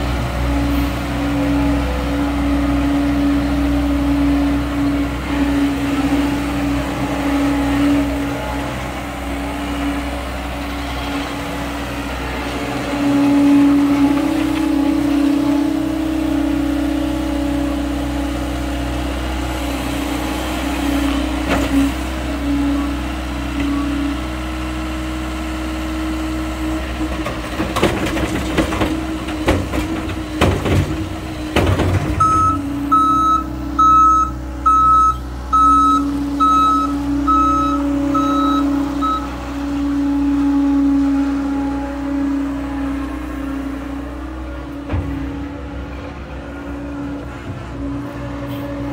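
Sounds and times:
diesel engine running: 0.0s - 48.9s
soil clattering into steel truck bed: 27.0s - 32.6s
backup alarm beeping: 32.2s - 39.3s.

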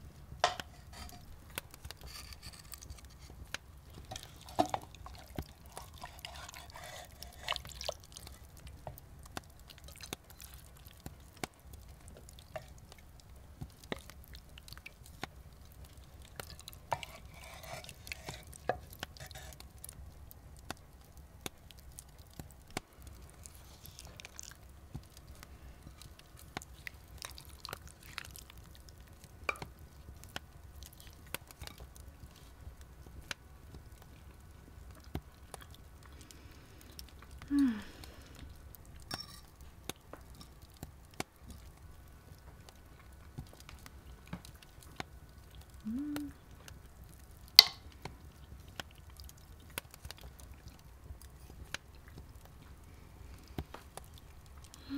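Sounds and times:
wooden spoon scraping clay pots: 0.4s - 3.4s, 4.0s - 7.8s, 16.9s - 19.6s.

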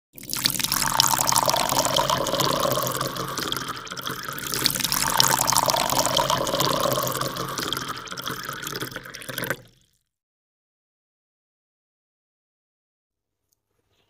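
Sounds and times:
water rushing and splashing: 0.2s - 9.7s.

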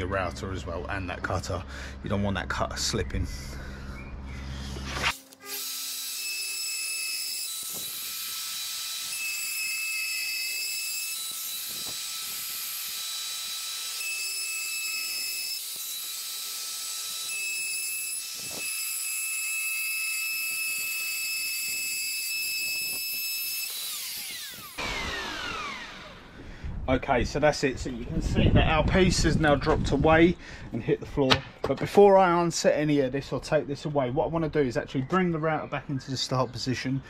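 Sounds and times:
router whining: 3.5s - 26.8s.

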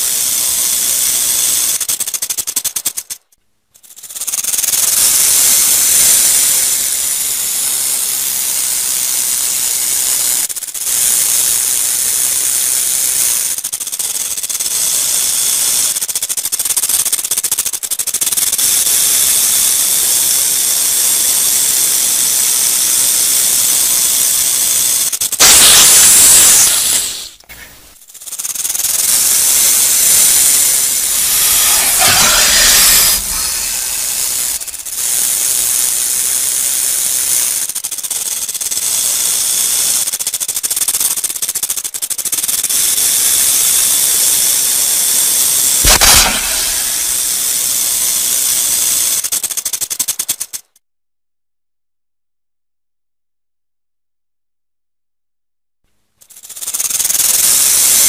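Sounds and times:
rattlesnake tail rattle buzzing: 0.0s - 50.8s, 56.2s - 58.0s.

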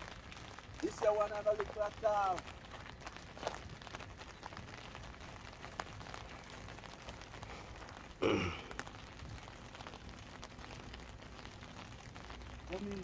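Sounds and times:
man straining exhalation: 8.2s - 8.8s.

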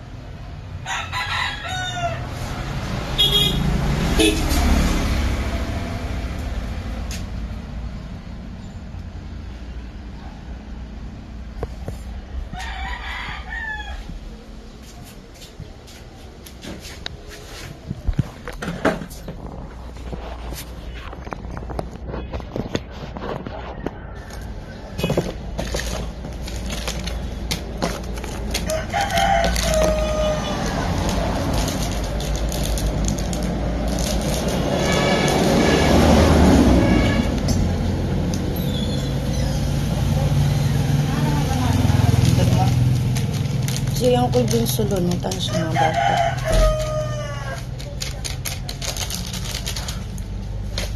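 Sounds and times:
vehicle rumble passing by: 0.0s - 50.9s
rooster crowing: 0.8s - 2.9s, 12.4s - 14.2s, 23.6s - 25.2s, 28.6s - 31.5s, 45.4s - 47.9s.

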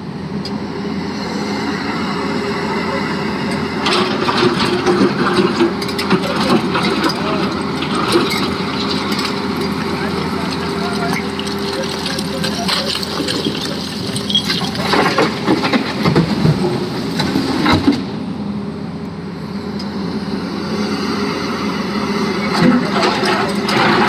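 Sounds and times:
diesel engine running: 0.0s - 24.0s
stone clattering into truck: 10.3s - 16.2s.

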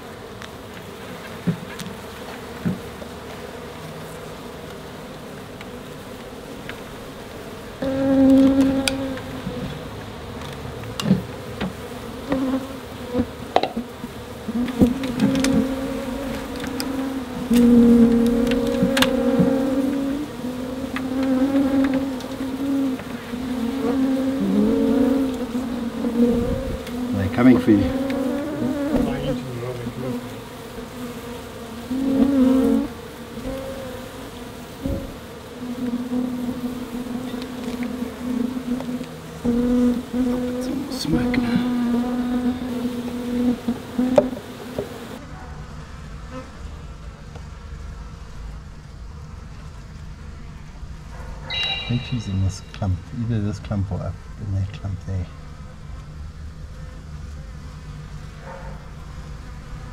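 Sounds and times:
bees buzzing: 0.0s - 59.9s
sharp knock: 51.4s - 52.8s.

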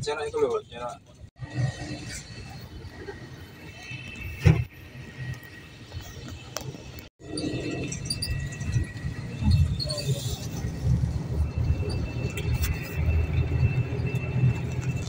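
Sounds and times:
engine and road rumble: 0.0s - 15.0s.

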